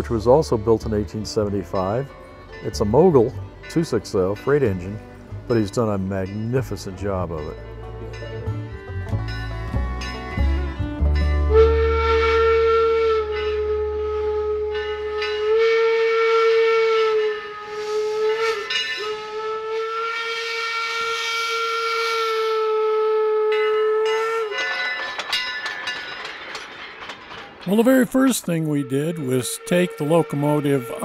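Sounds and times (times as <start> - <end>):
steam locomotive whistle: 11.4 - 25.8, 27.6 - 31.0.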